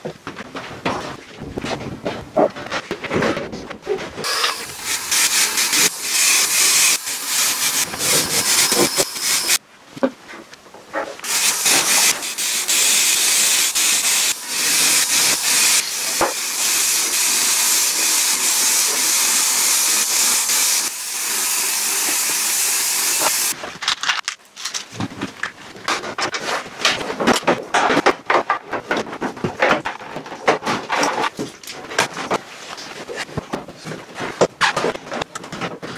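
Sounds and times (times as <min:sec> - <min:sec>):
spray paint can hissing: 0:04.2 - 0:09.6, 0:11.2 - 0:23.6.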